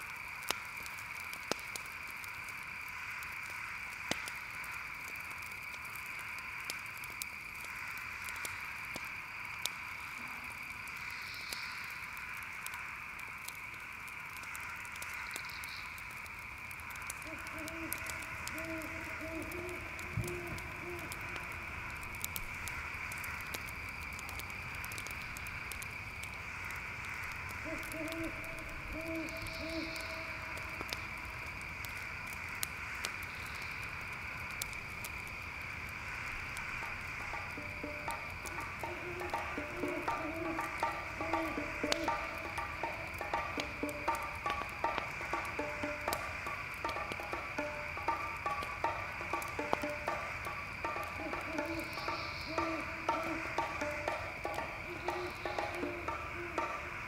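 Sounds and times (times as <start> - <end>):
campfire crackling: 0.0 - 57.0
crickets trilling: 0.0 - 57.0
owl hooting: 17.2 - 21.7, 27.6 - 30.8, 37.2 - 57.0.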